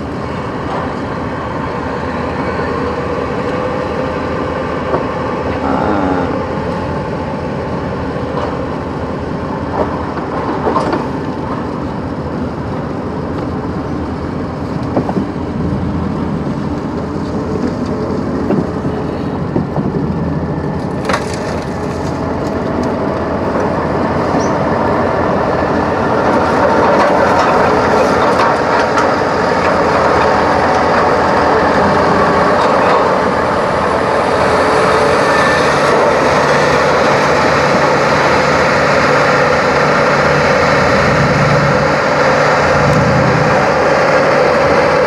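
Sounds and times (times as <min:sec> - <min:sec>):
tyres rolling over rough ground: 0:07.5 - 0:45.0
pickup truck engine running: 0:37.4 - 0:45.0.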